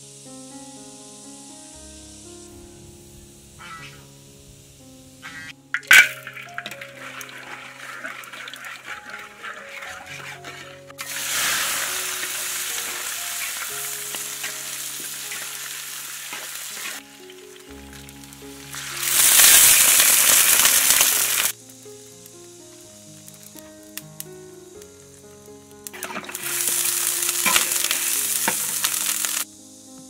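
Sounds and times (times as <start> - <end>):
meat sizzling in a wok: 0.0 - 30.0
faint background music: 0.1 - 30.0
metal spatula stirring: 5.3 - 17.0, 26.0 - 29.4
sugar bubbling in oil: 5.4 - 29.5.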